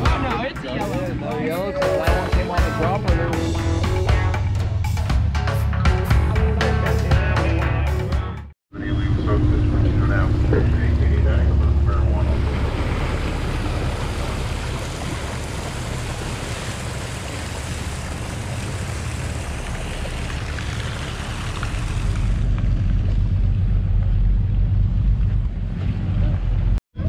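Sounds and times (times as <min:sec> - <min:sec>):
boat engine droning: 0:00.0 - 0:27.0
water rushing along boat hull: 0:08.8 - 0:26.8.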